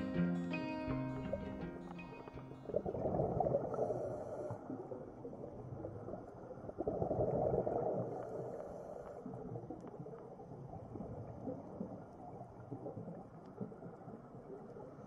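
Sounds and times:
underwater bubbles rumbling: 0:02.6 - 0:08.5, 0:09.1 - 0:15.0.

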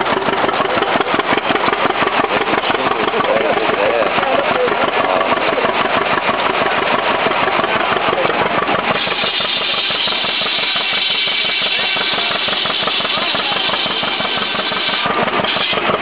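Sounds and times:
engine chugging: 0:00.0 - 0:16.0
saw whine: 0:00.0 - 0:16.0.

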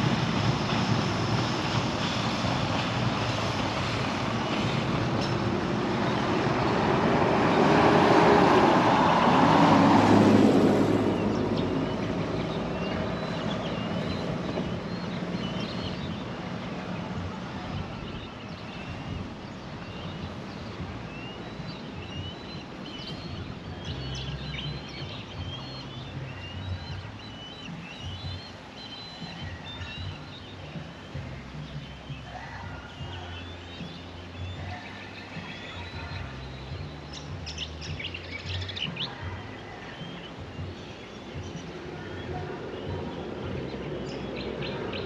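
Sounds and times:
vehicle passing: 0:00.0 - 0:18.0
birds chirping: 0:00.0 - 0:45.0.

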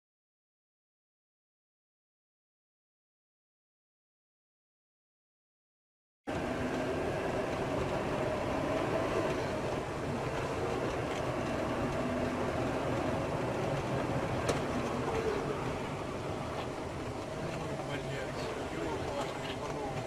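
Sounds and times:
vehicle rumbling in motion: 0:06.3 - 0:20.0.

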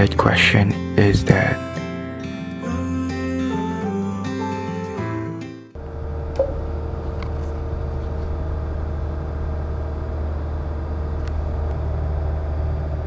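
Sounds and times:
low machinery hum: 0:05.8 - 0:13.0.

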